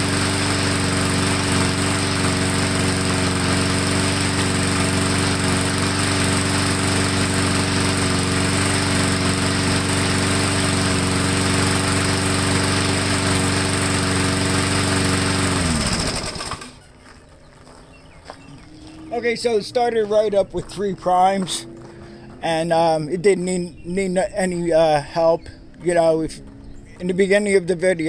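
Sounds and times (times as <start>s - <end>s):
lawnmower engine running: 0.0s - 17.3s, 17.9s - 28.0s.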